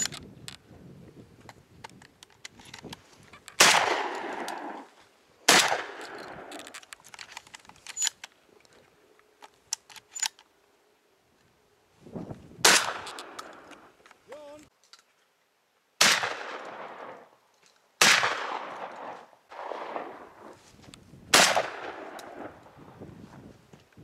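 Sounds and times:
shotgun shots: 3.6 - 4.9, 5.5 - 6.5, 12.6 - 13.6, 16.0 - 17.3, 18.0 - 20.5, 21.3 - 22.6.

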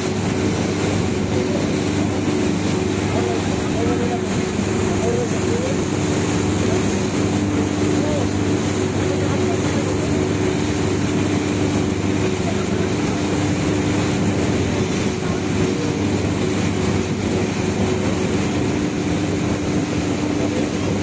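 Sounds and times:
boat engine droning: 0.0 - 21.0
churning water hiss: 0.0 - 21.0.

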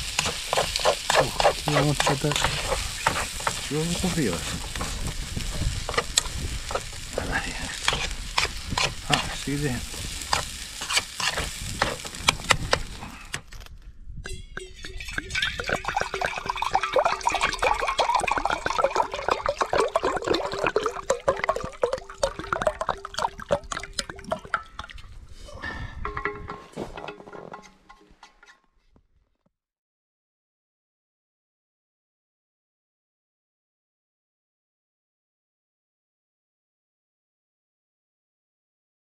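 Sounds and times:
liquid bubbling and crackling: 0.0 - 13.8, 14.5 - 26.5.

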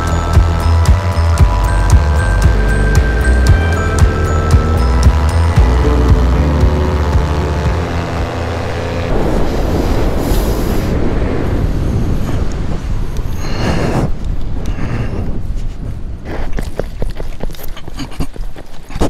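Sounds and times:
paramotor engine buzzing: 0.0 - 11.0
loud rushing noise: 1.4 - 14.2.

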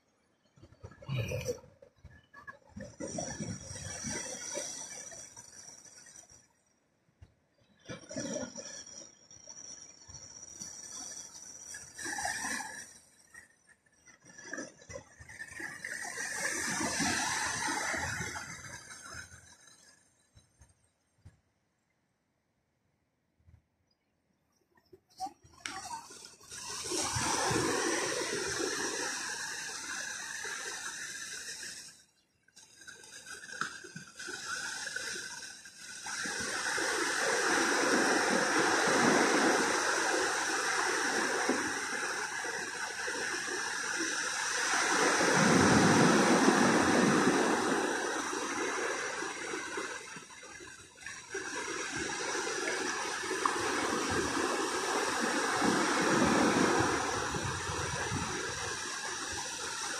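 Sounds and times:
small waves breaking on beach: 14.0 - 20.3, 25.1 - 59.9.

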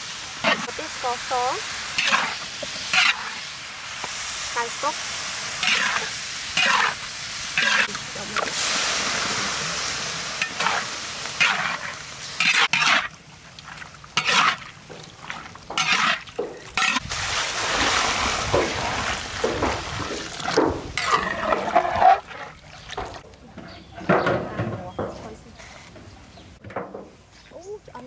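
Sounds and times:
meat sizzling in a wok: 0.0 - 16.2
metal spatula scraping a wok: 1.9 - 3.5, 5.6 - 8.8, 10.4 - 13.2, 14.2 - 17.1, 20.3 - 22.6.

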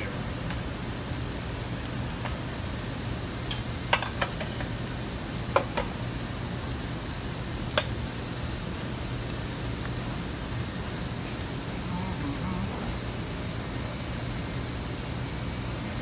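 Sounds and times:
food sizzling on a grill: 0.0 - 16.0
clicks of slices on grate: 3.5 - 4.7.

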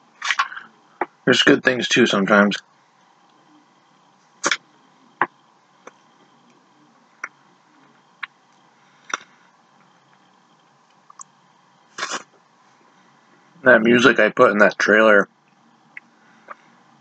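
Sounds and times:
person eating: 12.0 - 12.3.

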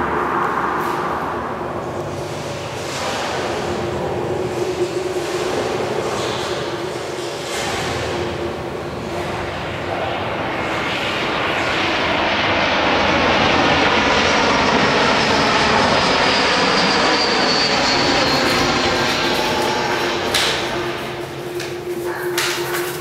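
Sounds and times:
high jet whine falling in pitch: 0.0 - 3.3, 8.8 - 23.0
jet airliner flying overhead: 0.0 - 23.0.

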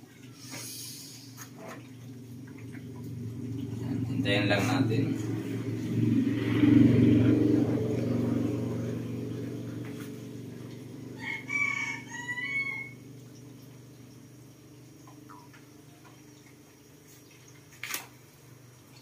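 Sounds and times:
low engine rumble: 0.0 - 19.0
rooster crowing: 10.8 - 13.2.

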